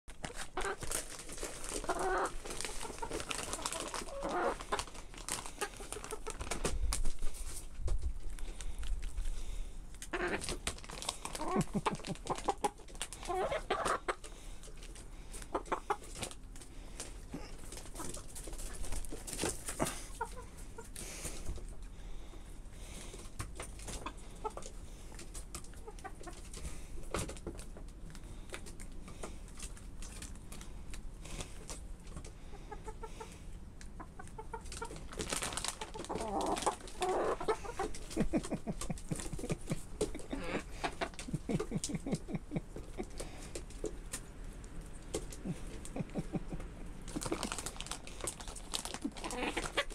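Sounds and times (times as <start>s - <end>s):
hens clucking: 0.1s - 7.6s, 10.0s - 49.9s.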